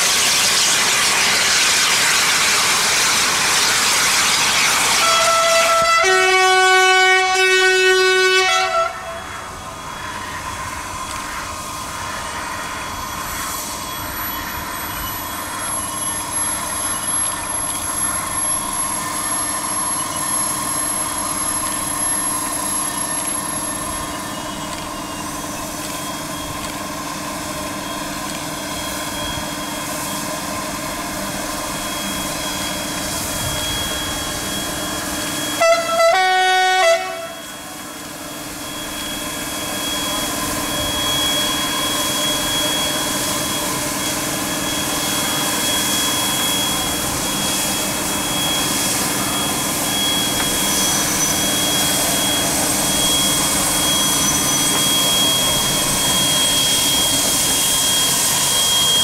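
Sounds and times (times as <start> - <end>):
train mechanical hum: 0.0 - 59.0
train rail noise: 0.0 - 59.0
two-note train horn: 5.0 - 9.3, 35.5 - 37.7.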